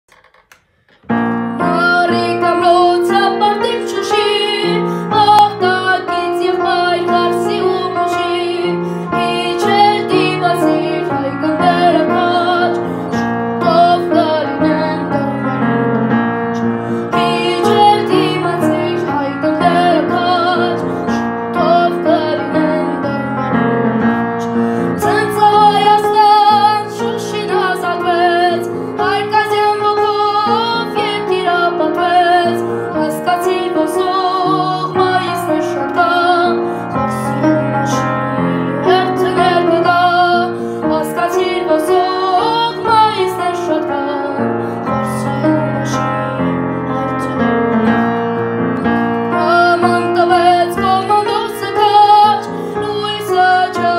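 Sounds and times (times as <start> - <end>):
piano chords: 0.0 - 53.9
boy singing with vibrato: 25.0 - 37.6, 38.8 - 46.3.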